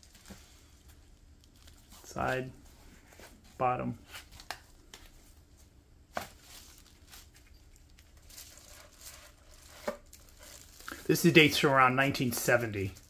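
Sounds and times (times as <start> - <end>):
book handling taps and rustles: 6.1 - 6.6.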